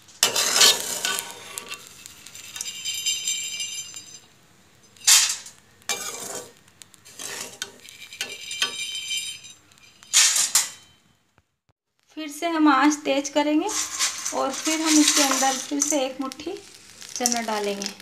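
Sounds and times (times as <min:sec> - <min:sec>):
metal spoon scraping through salt: 0:00.2 - 0:04.3, 0:05.9 - 0:10.2, 0:13.6 - 0:18.0
metal clinks: 0:02.5 - 0:04.3, 0:07.9 - 0:11.0
salt sifting: 0:13.7 - 0:18.0.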